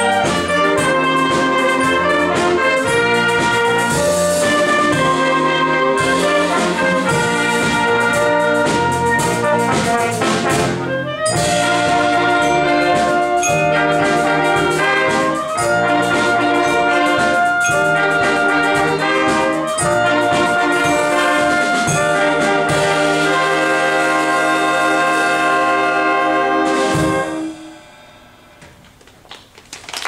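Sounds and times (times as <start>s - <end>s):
drum hits: 0.0s - 10.8s
wind band playing chords: 0.0s - 28.8s.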